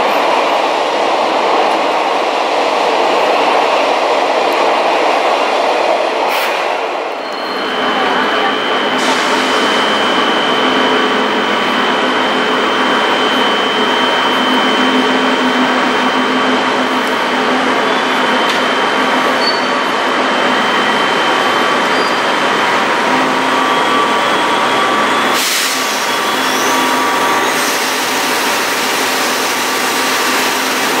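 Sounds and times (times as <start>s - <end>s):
air hissing: 25.3s - 28.3s.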